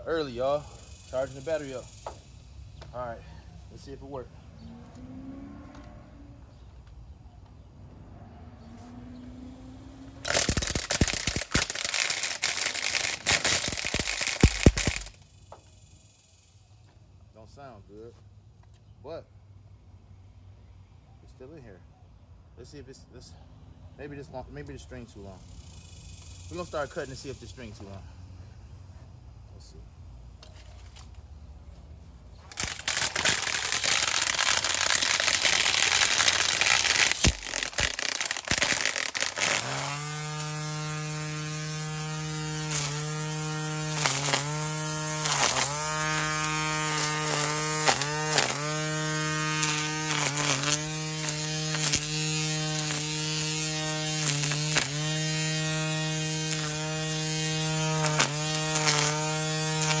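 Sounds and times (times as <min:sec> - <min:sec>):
string trimmer motor whining: 0:10.0 - 0:15.7, 0:32.4 - 1:00.0.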